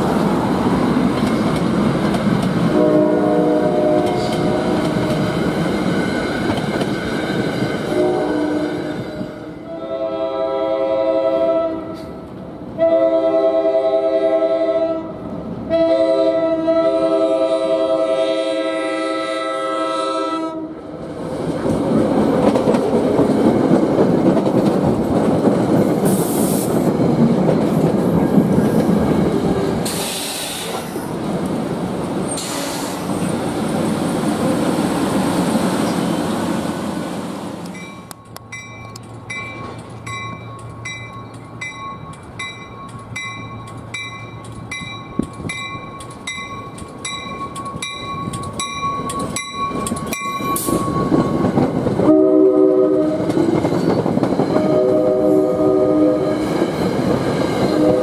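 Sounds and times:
train wheels rumbling and clattering: 0.0s - 9.6s, 20.9s - 52.2s, 52.9s - 58.0s
train air horn blasts: 2.7s - 5.0s, 7.9s - 12.2s, 12.8s - 20.8s, 52.0s - 53.5s, 54.5s - 56.6s, 57.6s - 58.0s.

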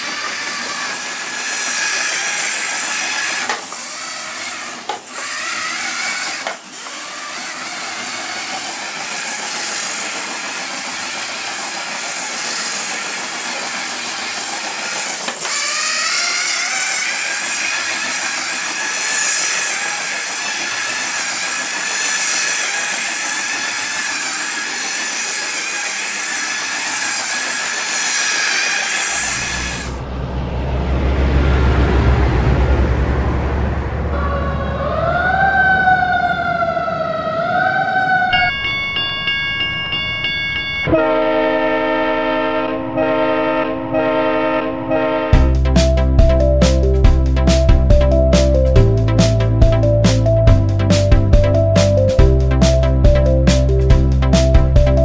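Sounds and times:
toy train hiss on plastic track: 0.0s - 29.6s
electric motor whine: 12.2s - 30.2s
loud low hum: 29.2s - 37.9s, 45.3s - 55.0s.

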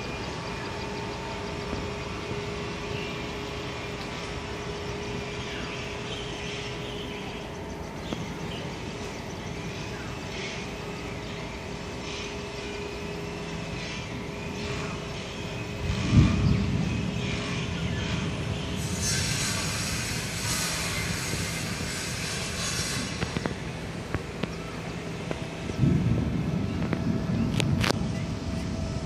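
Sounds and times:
distant traffic rumble: 0.0s - 29.0s
bright hiss: 18.7s - 24.0s.

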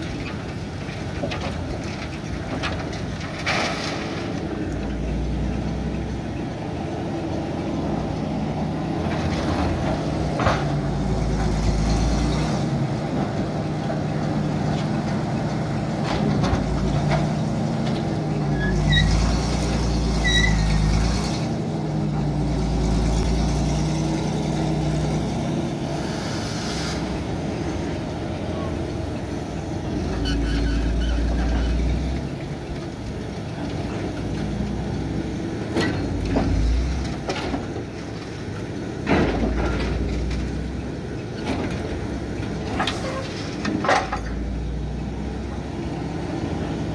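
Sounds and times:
shovel engine rumbling: 0.0s - 46.9s
short squeaks: 18.5s - 19.3s, 20.2s - 20.8s, 30.1s - 32.0s.

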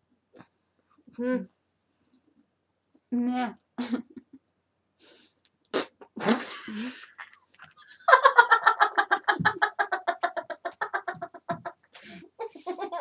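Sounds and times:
girl giggling: 8.0s - 13.0s.

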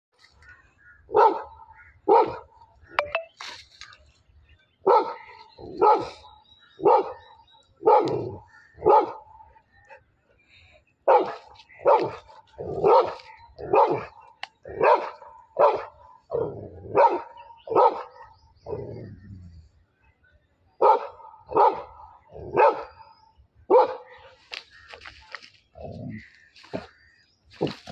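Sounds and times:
dog barking: 1.1s - 2.5s, 4.8s - 6.2s, 6.8s - 7.2s, 7.8s - 9.3s, 11.1s - 18.3s, 20.8s - 23.0s, 23.7s - 24.2s.

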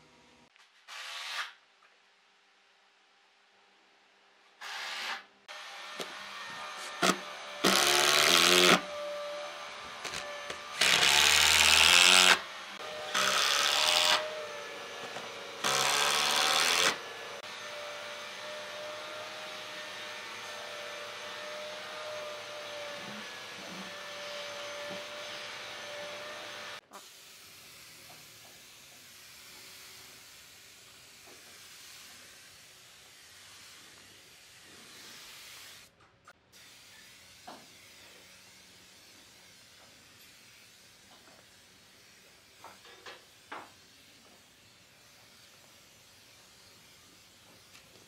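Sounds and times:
power drill driving screws: 4.6s - 9.3s, 9.9s - 17.0s.

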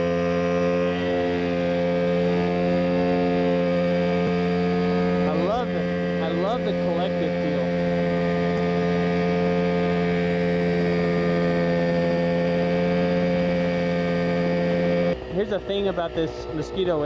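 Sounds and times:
helicopter engine and rotor drone: 0.0s - 17.0s.

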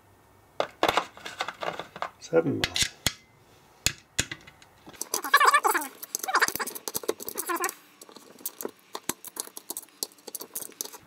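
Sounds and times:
screws squeaking: 5.0s - 8.7s.

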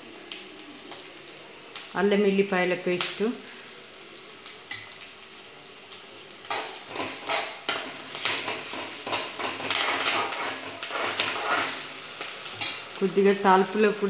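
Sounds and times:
food sizzling in hot oil: 0.0s - 14.0s
metal spatula scraping a pan: 6.5s - 13.0s.

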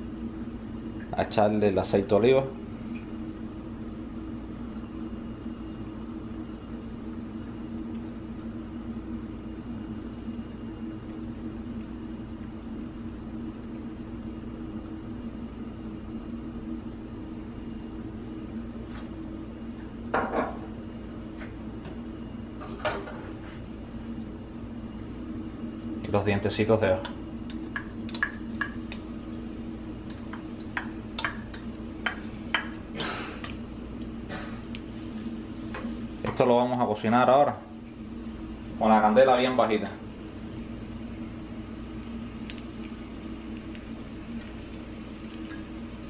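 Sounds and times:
appliance humming: 0.0s - 46.0s.

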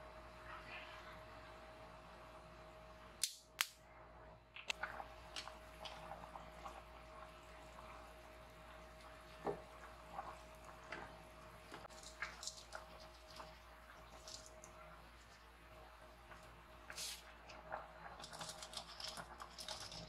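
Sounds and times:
faint steady cooker hum: 0.0s - 20.0s.

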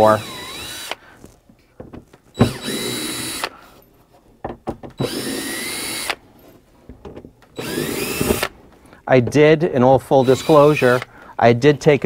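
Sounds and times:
cordless drill whining: 0.0s - 1.3s, 2.3s - 3.8s, 5.0s - 6.3s, 7.5s - 8.6s, 10.1s - 11.3s.

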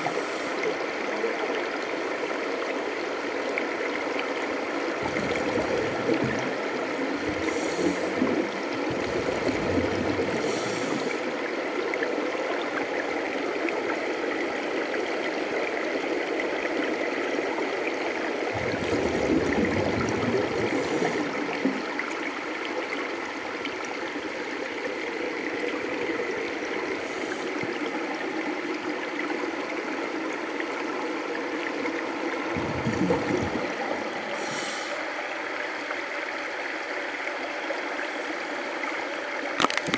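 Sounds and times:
underwater rushing water: 0.0s - 39.9s
gurgling regulator bubbles: 4.1s - 14.1s, 16.6s - 35.2s.

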